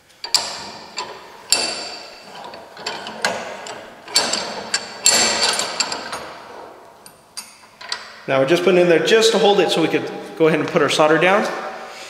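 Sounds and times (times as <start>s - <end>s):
vise handle clanking: 0.2s - 8.2s.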